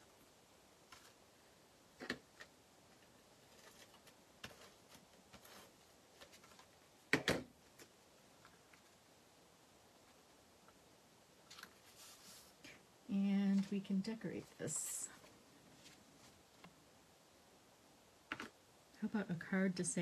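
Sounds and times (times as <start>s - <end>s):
paper rustling: 0.9s - 1.2s, 2.4s - 6.8s, 11.4s - 12.7s.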